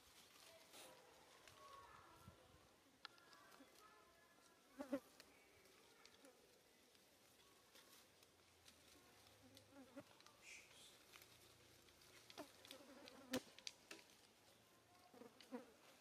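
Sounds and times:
rustles and ticks in dry leaves: 0.0 - 16.0
insects buzzing faintly: 8.7 - 13.9.

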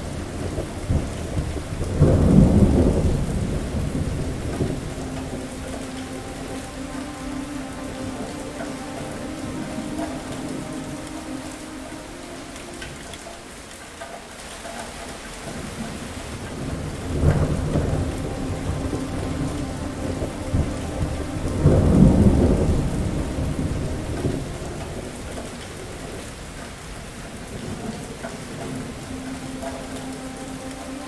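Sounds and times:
thunder rolling: 0.0 - 6.7, 15.4 - 26.3
heavy rain: 0.0 - 31.0.

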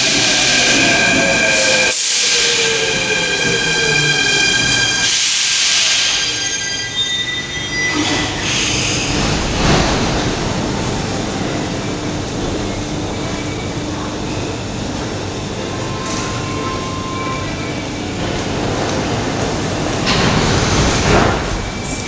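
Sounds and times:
train air hiss: 0.0 - 3.3, 5.0 - 6.4, 8.4 - 9.4
train brake squeal: 0.6 - 9.2, 15.8 - 18.0
standing train hum: 8.1 - 22.0.

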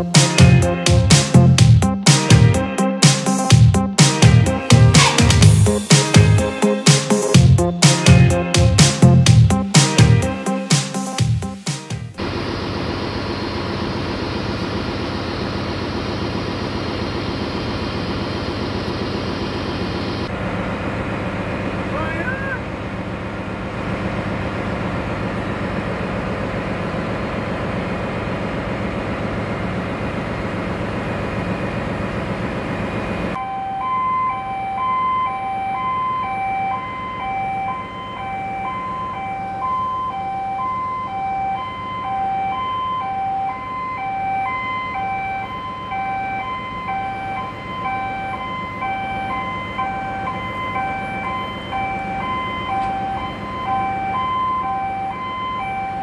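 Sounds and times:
engine room machinery noise: 3.5 - 56.0
two-tone alarm beeping: 33.4 - 56.0.

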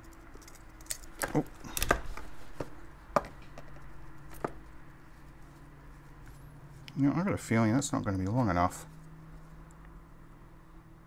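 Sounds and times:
gloved hands handling cable: 0.0 - 6.4.

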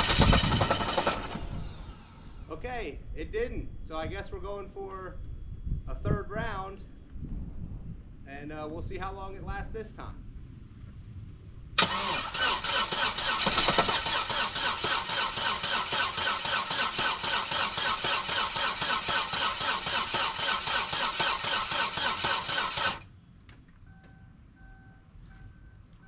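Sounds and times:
car engine cranking: 0.0 - 2.4, 11.8 - 23.1
faint regular beeping: 23.3 - 26.0.

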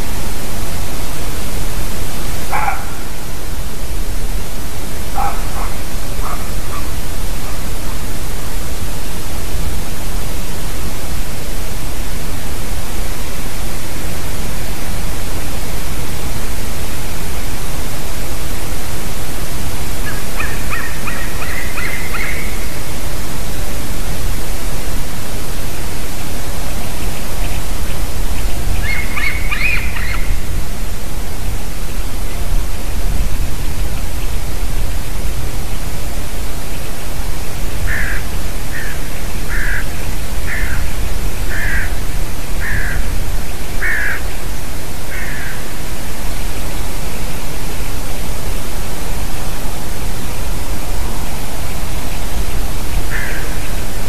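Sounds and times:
steady loud hiss: 0.0 - 54.0
animal calls: 2.5 - 3.2, 5.1 - 8.0, 20.0 - 22.6, 28.8 - 30.4.

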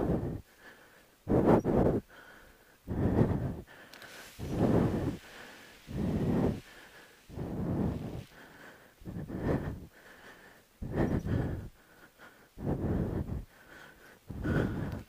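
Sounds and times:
heavy breathing: 0.0 - 15.0.

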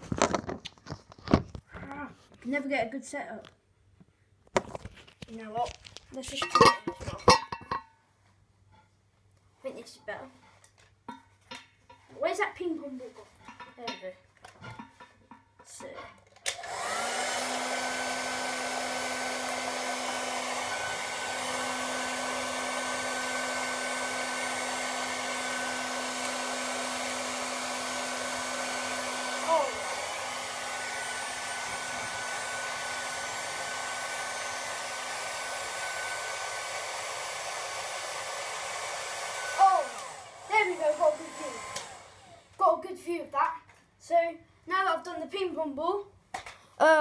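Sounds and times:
hairdryer blowing: 6.4 - 7.8, 16.5 - 42.6.

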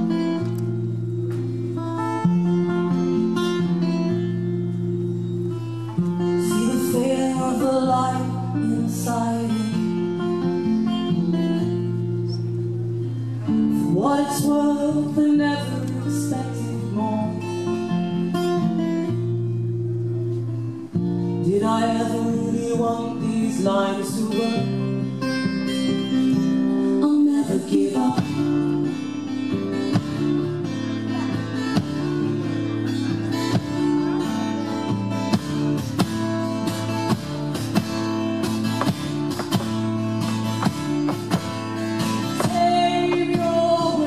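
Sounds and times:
acoustic guitars strummed: 0.0 - 44.0
person singing: 6.3 - 11.0, 13.4 - 18.1, 21.2 - 25.2, 26.6 - 29.6, 40.8 - 44.0.

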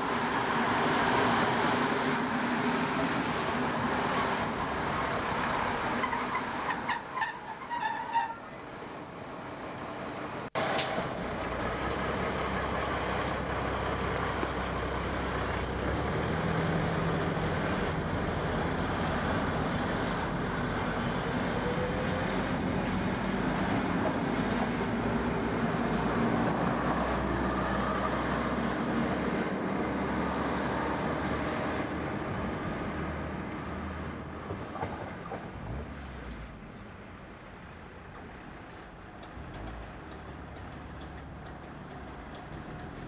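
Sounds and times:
train wheels on rails: 38.1 - 43.0.

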